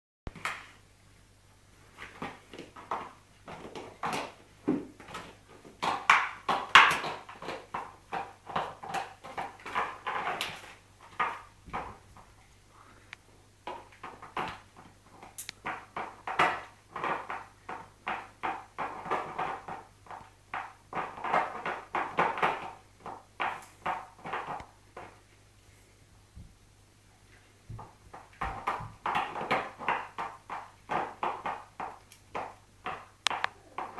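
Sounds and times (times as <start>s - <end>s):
dog chewing plastic bottle: 2.1s - 12.3s.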